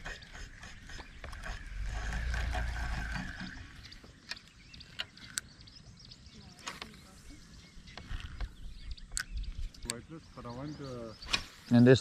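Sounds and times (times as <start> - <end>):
sharp clicks: 9.1 - 10.0.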